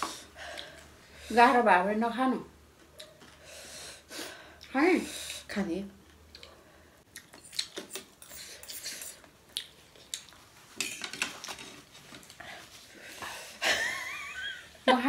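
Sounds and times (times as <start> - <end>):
cutlery clinking on plates: 10.8 - 11.8.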